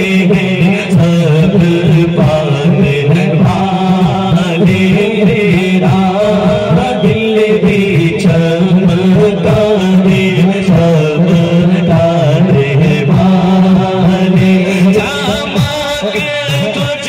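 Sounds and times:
man singing into microphone: 0.0s - 17.0s
men singing backing vocals: 0.0s - 17.0s.

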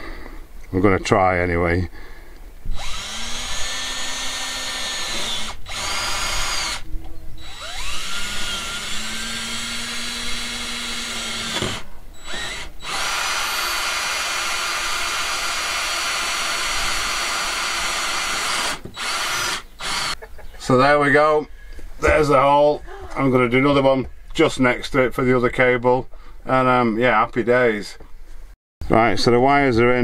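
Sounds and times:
power drill boring through roof: 2.7s - 6.8s, 7.4s - 20.2s.

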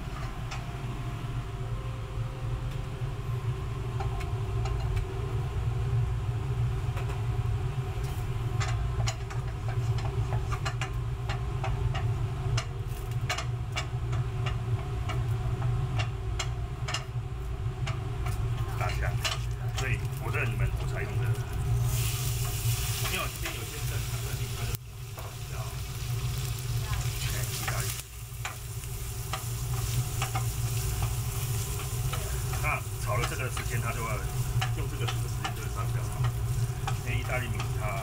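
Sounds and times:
low rumble of kitchen machinery: 0.0s - 38.0s
garlic crackling in hot oil: 8.0s - 38.0s.

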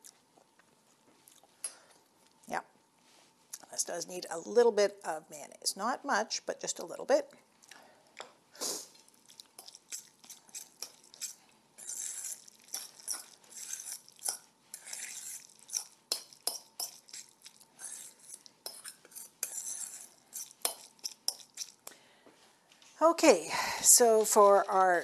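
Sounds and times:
fork scraping metal bowl: 9.6s - 21.8s.

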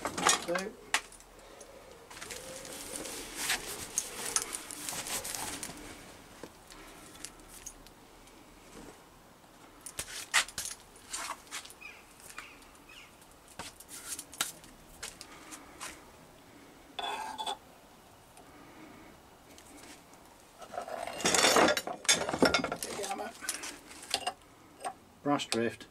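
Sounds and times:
cloth rag rustling: 2.1s - 6.2s.

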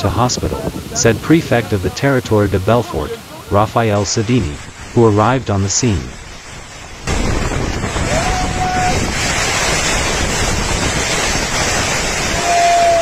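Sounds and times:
wind noise on microphone: 0.0s - 3.1s, 5.9s - 13.0s
rain buffeting a canopy tent: 0.0s - 13.0s
storm wind: 0.0s - 13.0s.

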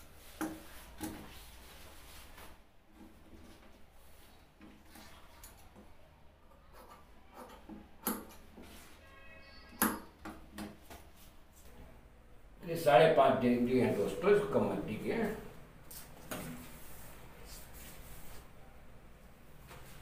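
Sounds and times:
cloth rustling: 0.0s - 4.3s.

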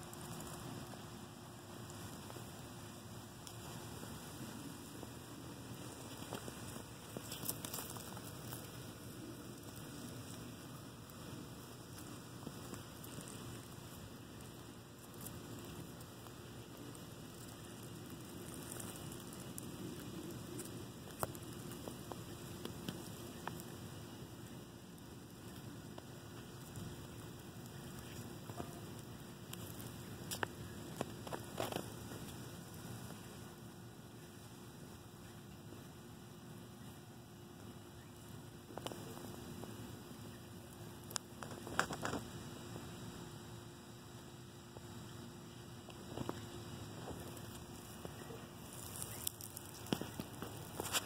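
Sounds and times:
faint background noise: 0.0s - 51.0s
faint steady hum: 0.0s - 51.0s
small sharp ticks: 3.3s - 33.3s, 38.2s - 43.1s, 45.8s - 51.0s.

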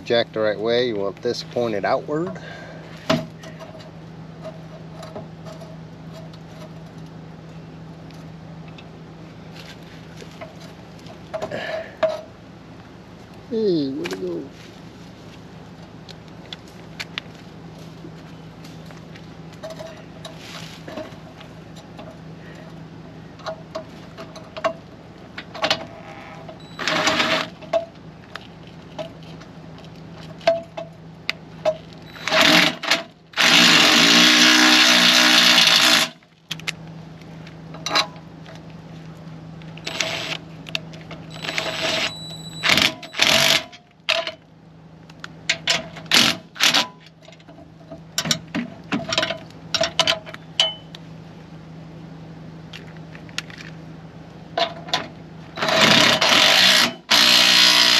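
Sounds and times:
cordless drill driving bolts: 26.8s - 27.6s, 32.1s - 36.2s, 39.8s - 40.4s, 41.3s - 44.2s, 46.1s - 46.9s, 55.6s - 57.9s.

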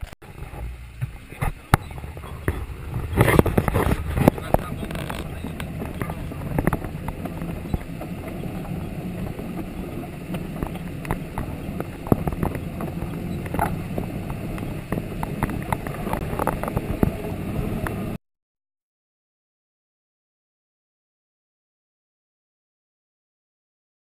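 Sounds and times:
car engine running: 0.0s - 18.2s
vehicle knocks and rattles: 0.3s - 18.2s.

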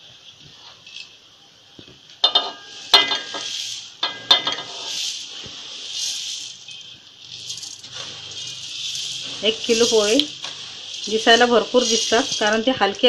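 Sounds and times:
metal plate clinking on pan: 2.2s - 3.4s
dry flakes pouring into pan: 2.2s - 13.0s.

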